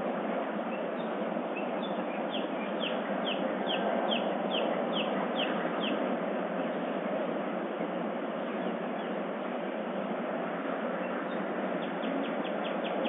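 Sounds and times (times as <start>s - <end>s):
steady background hiss: 0.0s - 13.0s
bird singing: 0.7s - 6.8s, 8.4s - 9.2s, 11.0s - 13.0s.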